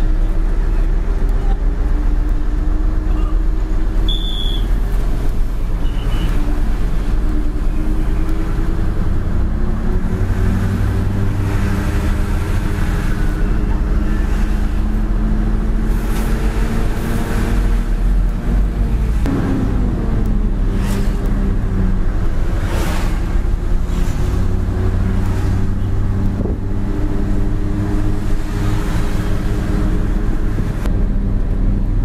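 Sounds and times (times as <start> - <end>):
road noise: 0.0 - 32.0
truck diesel engine running: 0.0 - 32.0
short high beep: 4.1 - 4.7.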